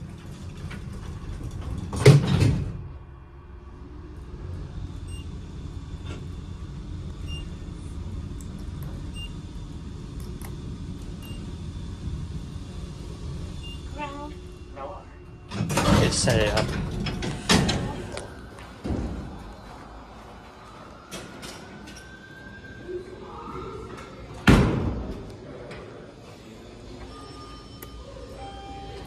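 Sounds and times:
elevator car rumbling: 0.0 - 29.0
elevator doors closing thud: 0.4 - 2.9, 15.4 - 18.2.

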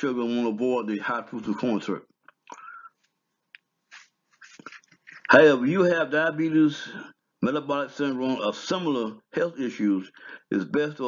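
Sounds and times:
man's mouth clicks and lip smacks: 2.2 - 5.3.

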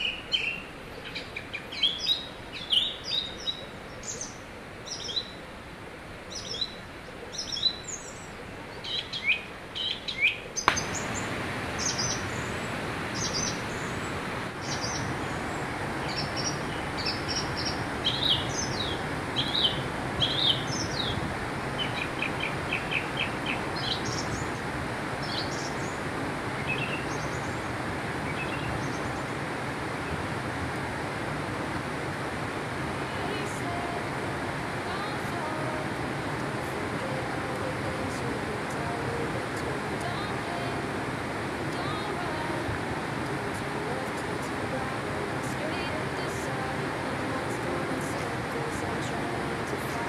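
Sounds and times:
small birds chirping: 0.0 - 5.5, 6.2 - 30.3
river rushing: 0.0 - 50.0.

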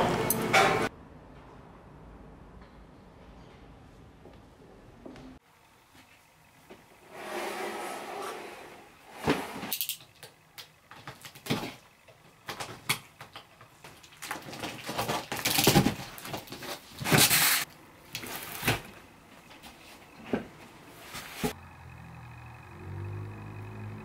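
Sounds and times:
paper packaging rustling: 13.8 - 19.0.

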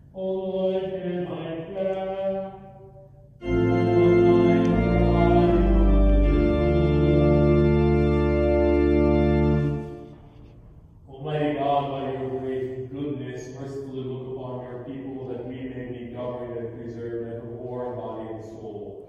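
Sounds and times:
church organ chords: 0.0 - 19.0.

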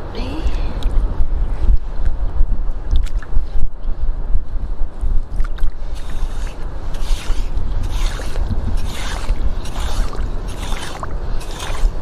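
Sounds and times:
wind rumble on microphone: 0.0 - 12.0
rake scraping wet sand: 5.8 - 12.0.

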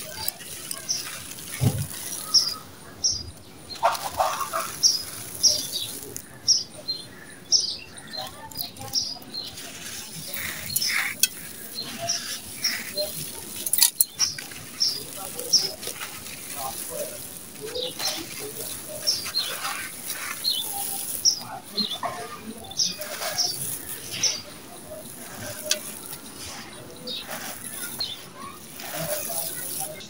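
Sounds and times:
grit poured into pot: 0.0 - 2.7, 9.0 - 30.0
birds chirping: 0.0 - 30.0
gritty crunching by hand: 0.0 - 30.0
sand trickling: 0.0 - 30.0.

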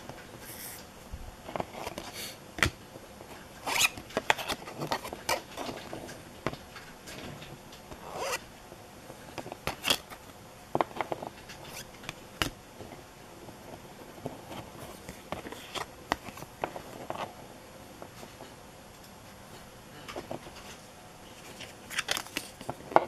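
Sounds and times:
cards shuffling: 3.6 - 6.6, 9.4 - 10.2, 10.8 - 12.6, 14.2 - 17.3, 21.4 - 23.0.

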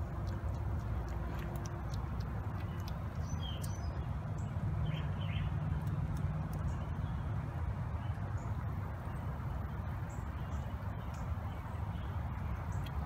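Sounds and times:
bird chirps: 1.9 - 7.4.

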